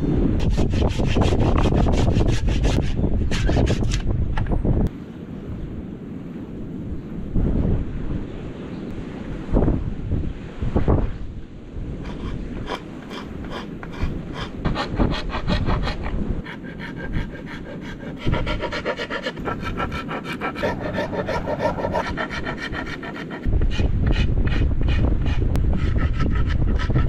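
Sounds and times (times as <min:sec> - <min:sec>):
wind rumble on microphone: 0:00.0 - 0:27.0
file rasping on wood: 0:00.4 - 0:04.0, 0:12.0 - 0:27.0.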